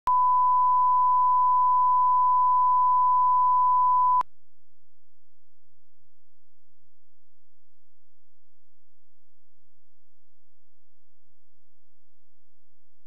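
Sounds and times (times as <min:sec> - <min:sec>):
steady reference tone beep: 0:00.1 - 0:04.2.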